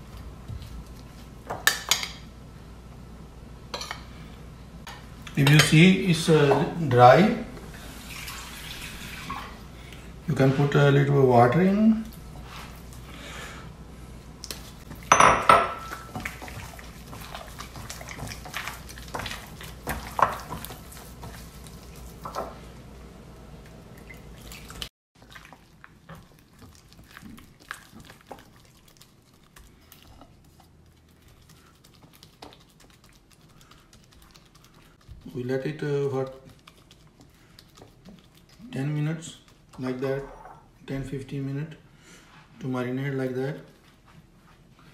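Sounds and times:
water pouring: 0:07.8 - 0:09.6, 0:23.9 - 0:28.9
hands squelching wet batter: 0:15.9 - 0:22.7, 0:23.6 - 0:40.2.

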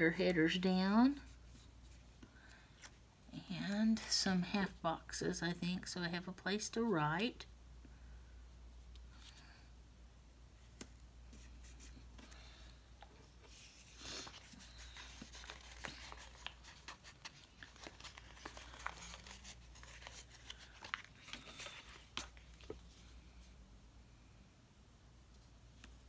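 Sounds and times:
paper rustling: 0:13.4 - 0:23.2.

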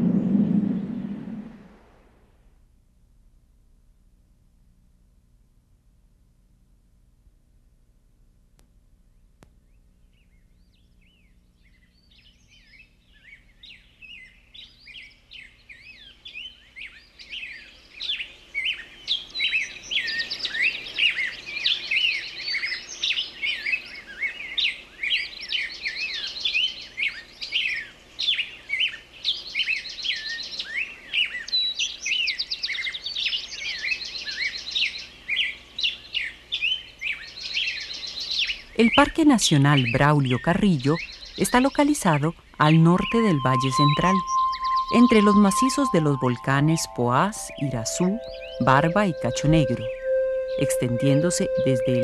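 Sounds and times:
forest birds chirping: 0:09.6 - 0:52.0
buzzy bird trills: 0:42.7 - 0:52.0.

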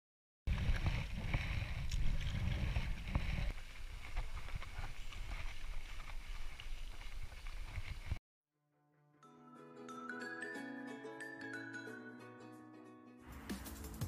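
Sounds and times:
bicycle tyre noise on road: 0:00.5 - 0:08.2
paddle and water noise: 0:00.5 - 0:08.2
wind rumbling on microphone: 0:00.5 - 0:08.2.

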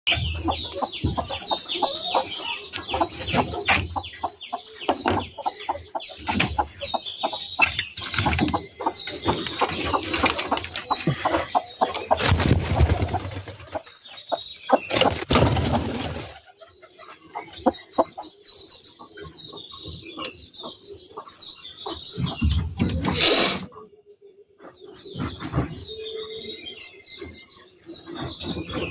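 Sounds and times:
chicks peeping: 0:00.1 - 0:28.9
rustling and wing flapping: 0:12.0 - 0:13.8.

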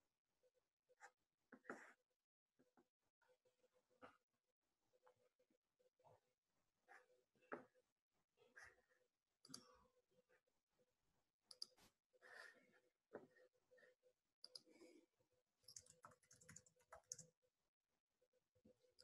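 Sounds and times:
mouse and keyboard clicks: 0:14.4 - 0:14.7, 0:15.6 - 0:17.3.

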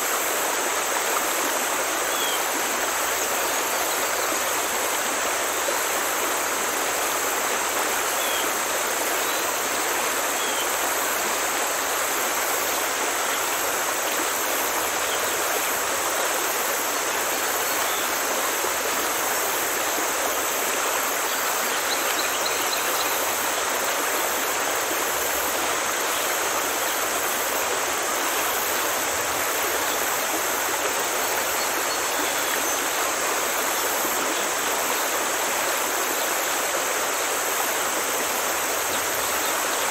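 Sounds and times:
running water rushing: 0:00.0 - 0:39.9.

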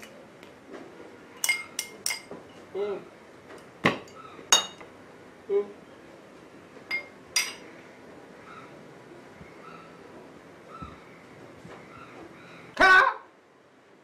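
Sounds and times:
hard objects clinking together: 0:01.4 - 0:02.3.

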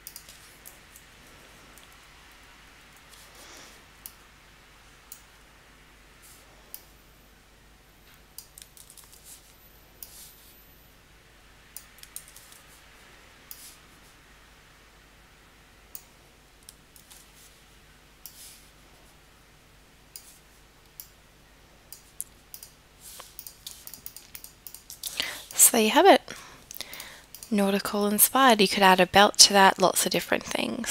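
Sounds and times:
faint steady hum: 0:00.0 - 0:30.9
mouse and keyboard clicks: 0:22.0 - 0:25.1.

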